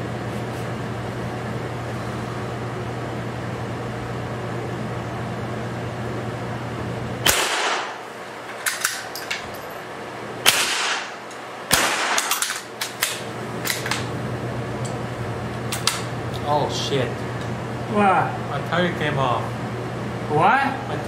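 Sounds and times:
steady low hum: 0:00.0 - 0:21.0
rifle shots echoing indoors: 0:07.2 - 0:08.1, 0:10.4 - 0:13.2.

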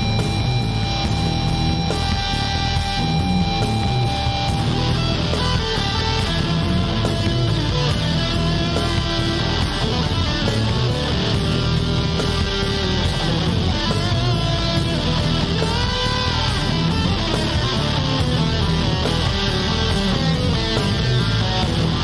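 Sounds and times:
instrumental rock music with guitar: 0:00.0 - 0:22.0.

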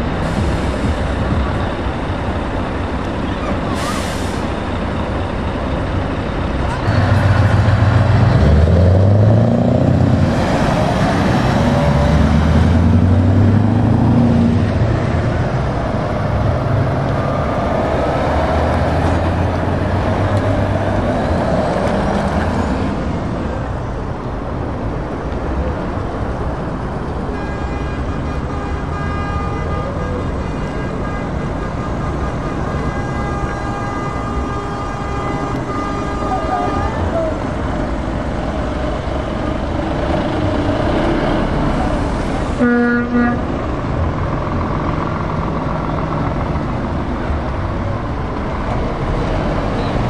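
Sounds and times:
truck diesel engines accelerating: 0:00.0 - 0:50.0
steady horn-like tone: 0:27.3 - 0:37.2, 0:42.6 - 0:43.5.

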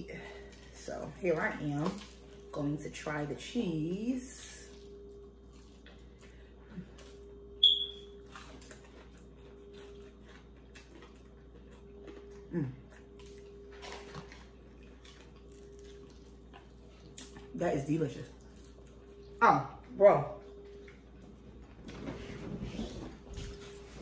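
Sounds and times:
low hum: 0:00.0 - 0:24.0
crunchy chewing of fried chicken: 0:00.2 - 0:02.9, 0:04.4 - 0:19.4
sharp high squeak: 0:07.6 - 0:08.1.

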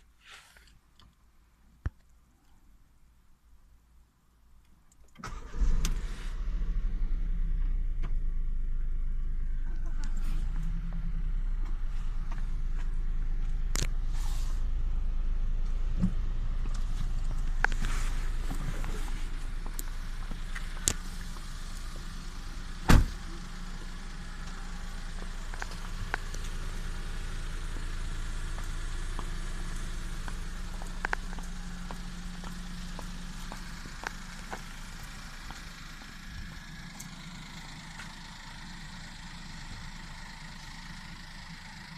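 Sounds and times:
car engine idling: 0:05.2 - 0:41.9
sharp thump: 0:22.8 - 0:23.2.

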